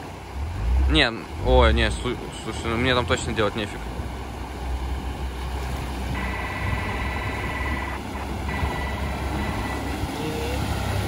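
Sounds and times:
engine running under load: 0.0 - 11.0
river water surging and splashing: 0.0 - 11.0
high-pitched tone: 6.1 - 11.0.

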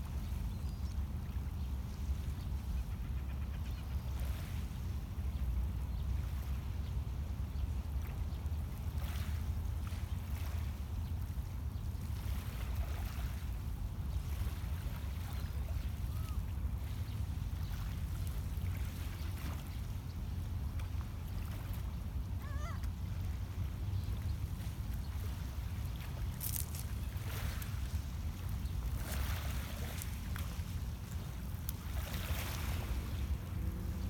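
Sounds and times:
waves lapping on pebbles: 24.4 - 34.0.

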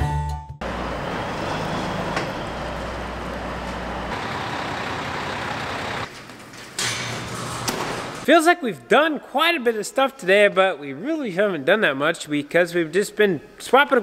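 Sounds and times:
diesel truck idling: 0.6 - 6.1.

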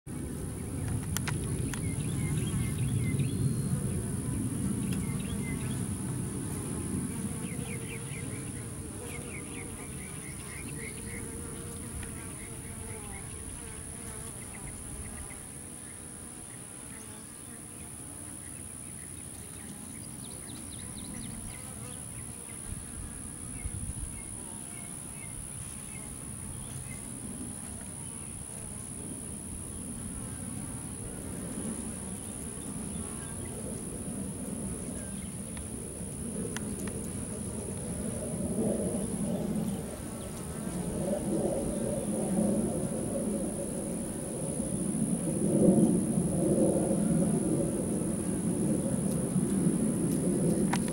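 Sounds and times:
honey bees buzzing: 0.2 - 18.2.

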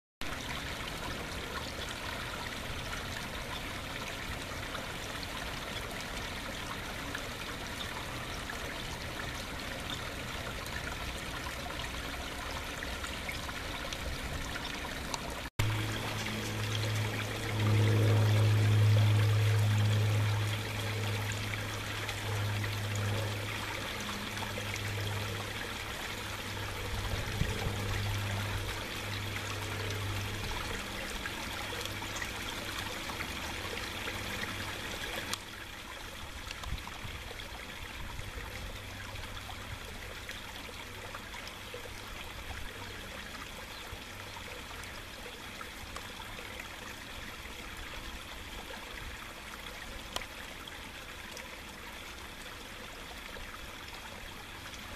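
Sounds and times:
water trickling into pond: 0.2 - 54.9
low hum: 7.1 - 35.5.

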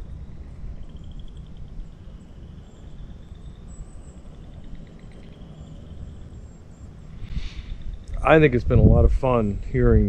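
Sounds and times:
frogs trilling in chorus: 0.0 - 8.6
low rumble: 7.1 - 10.0.

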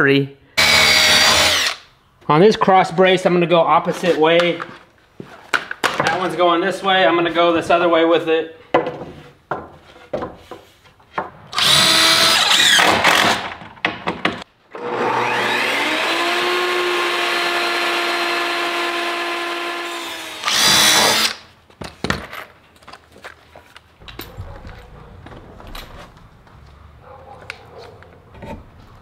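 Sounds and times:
impact driver burst: 0.6 - 1.8, 11.6 - 13.4, 19.8 - 21.4
table saw ripping a board: 0.6 - 1.8, 11.5 - 13.6, 14.7 - 21.5.

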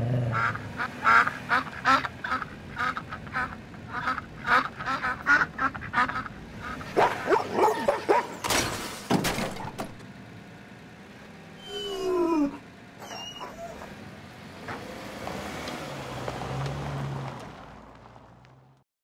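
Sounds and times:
ducks quacking: 0.3 - 8.4
dog howling: 11.6 - 14.0.

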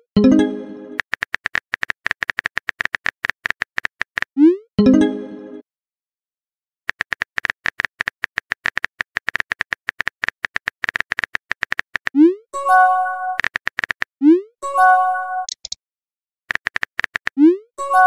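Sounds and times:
keyboard typing clicks: 1.0 - 4.3, 6.9 - 12.2, 13.3 - 14.1, 15.4 - 15.8, 16.5 - 17.5.

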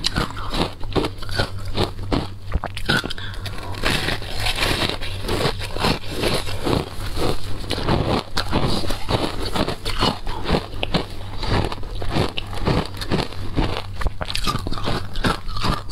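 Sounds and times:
crunching shaved ice: 0.0 - 15.9.

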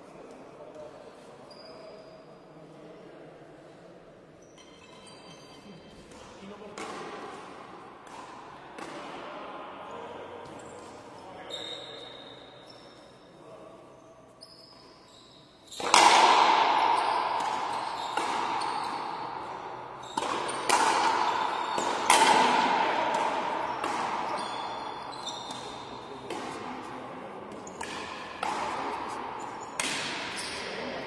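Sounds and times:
rubber ball struck by rackets: 15.8 - 18.6, 20.1 - 24.3, 27.5 - 30.4.

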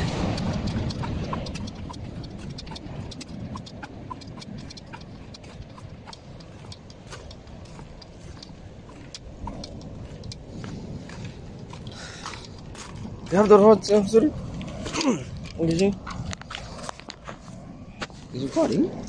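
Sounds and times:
light clicks: 0.0 - 17.2
steady low rumble: 0.0 - 19.0
footsteps on concrete: 6.2 - 18.3.

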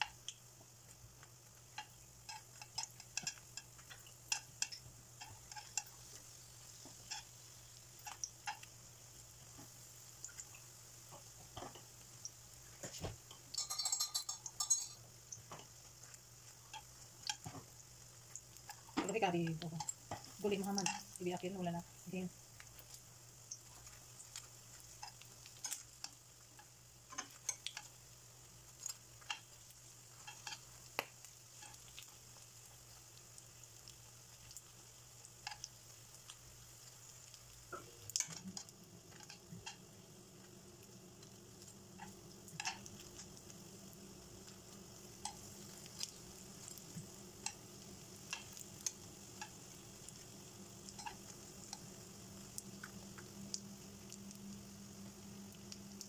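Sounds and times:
rolls sizzling in oil: 0.0 - 56.0
metal tongs clicking on pan: 1.8 - 5.9, 7.1 - 7.3, 13.5 - 15.0, 19.4 - 21.2, 25.0 - 27.9, 38.1 - 39.8, 42.0 - 43.3, 47.4 - 47.6, 48.3 - 49.6, 50.9 - 51.8.

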